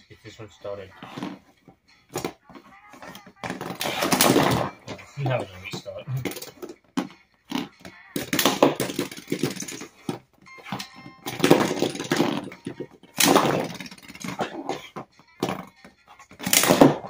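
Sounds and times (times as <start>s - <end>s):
toy pieces clacking: 6.2s - 7.1s, 7.8s - 14.8s.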